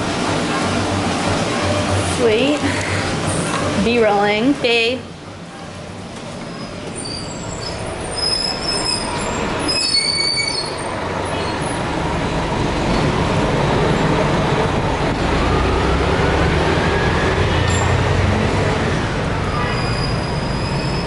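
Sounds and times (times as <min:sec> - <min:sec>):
elevated train passing overhead: 0:00.0 - 0:21.0
train wheels squealing: 0:06.5 - 0:11.8, 0:17.1 - 0:18.0, 0:19.5 - 0:21.0.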